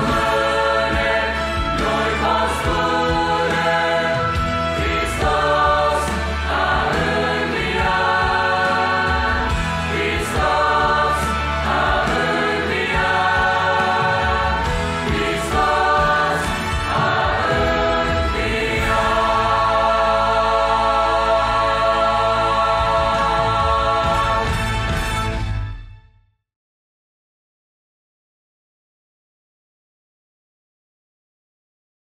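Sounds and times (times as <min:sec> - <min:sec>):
choir singing a hymn: 0:00.0 - 0:25.2.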